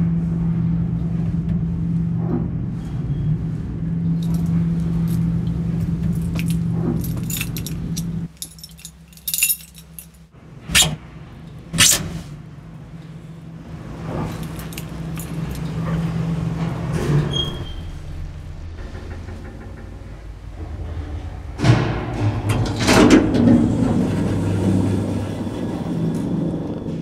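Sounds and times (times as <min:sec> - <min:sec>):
lift hum: 0:00.0 - 0:27.0
keys jangling: 0:04.2 - 0:10.3, 0:14.2 - 0:15.9.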